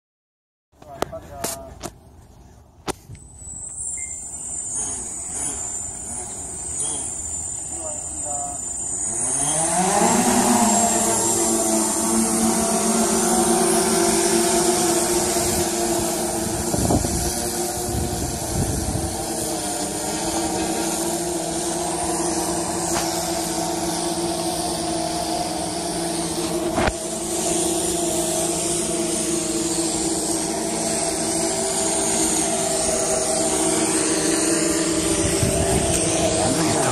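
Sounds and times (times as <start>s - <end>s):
drone rotors humming: 0.8s - 36.9s.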